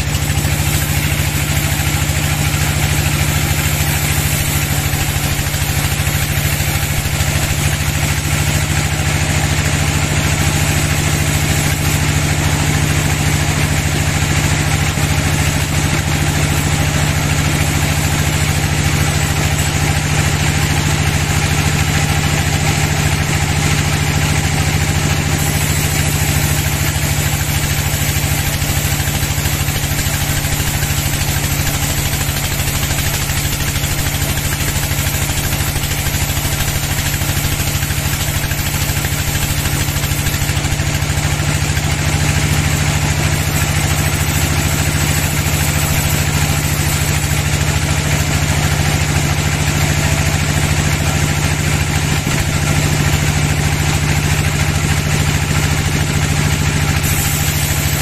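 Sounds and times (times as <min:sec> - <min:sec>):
sawmill drive low drone: 0:00.0 - 0:58.0
band saw cutting hiss: 0:00.1 - 0:08.6, 0:24.8 - 0:40.8, 0:56.9 - 0:58.0.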